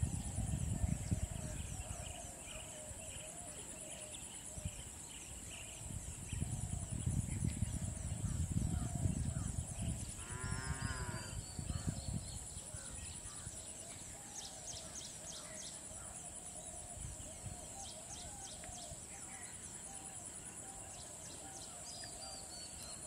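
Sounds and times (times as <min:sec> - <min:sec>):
high insect buzz: 0:10.2 - 0:11.8.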